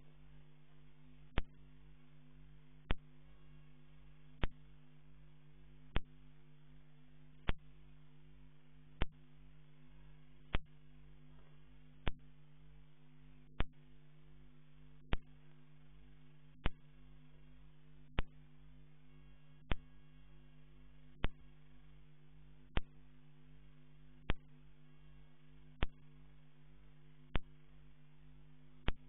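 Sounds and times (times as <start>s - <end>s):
electrical hum: 0.0s - 29.0s
sharp clicks: 4.4s - 4.6s, 5.9s - 6.2s, 7.4s - 7.7s, 15.1s - 15.4s, 18.1s - 18.4s, 19.6s - 19.9s, 21.2s - 21.5s, 22.7s - 23.0s, 25.8s - 26.0s, 27.3s - 27.6s, 28.8s - 29.0s.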